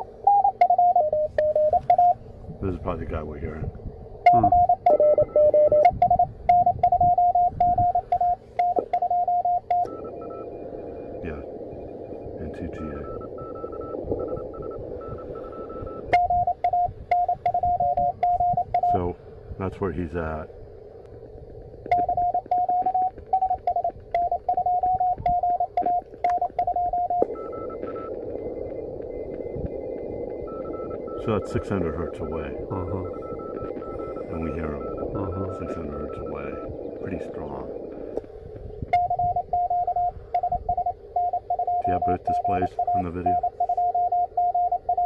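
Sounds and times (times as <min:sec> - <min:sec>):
radio band hiss: 0:00.0 - 0:00.3, 0:01.2 - 0:04.8, 0:10.3 - 0:16.2, 0:17.9 - 0:24.4, 0:27.0 - 0:38.9, 0:41.8 - 0:44.2
morse code tone: 0:00.0 - 0:02.2, 0:04.2 - 0:19.0, 0:21.9 - 0:38.2, 0:38.9 - 0:45.0
lower-pitched morse code tone: 0:00.0 - 0:03.5, 0:04.2 - 0:19.1, 0:21.9 - 0:38.2, 0:38.9 - 0:45.0.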